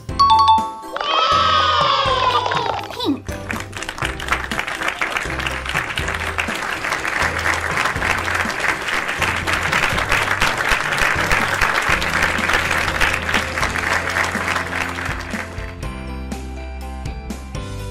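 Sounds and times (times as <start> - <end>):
background music with bass line: 0.0 - 17.9
applause: 2.3 - 15.9.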